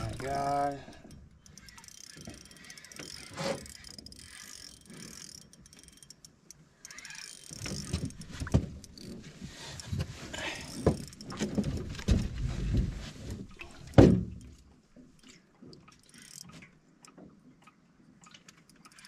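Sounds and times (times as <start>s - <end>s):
fishing reel clicking: 0.0s - 10.0s, 10.6s - 11.5s, 15.2s - 17.2s, 18.4s - 19.0s.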